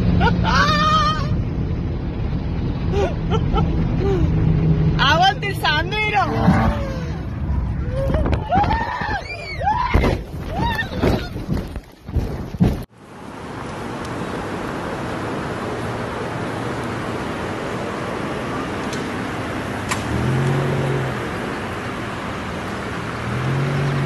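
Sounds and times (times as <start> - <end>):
street traffic rushing: 0.0 - 9.4, 12.8 - 24.0
low rising and falling sound: 6.1 - 8.8.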